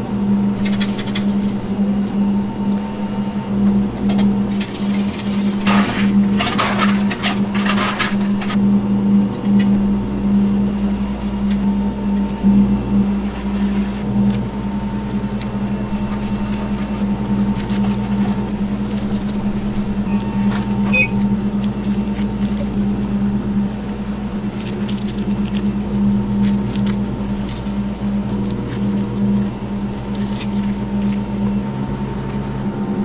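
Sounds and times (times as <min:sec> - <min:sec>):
low mechanical hum: 0:00.0 - 0:33.0
faint high tone: 0:20.0 - 0:21.2.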